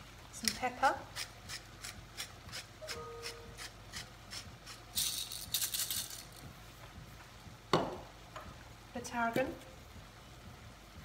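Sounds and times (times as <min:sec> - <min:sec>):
pepper mill grinding: 0:00.4 - 0:06.5.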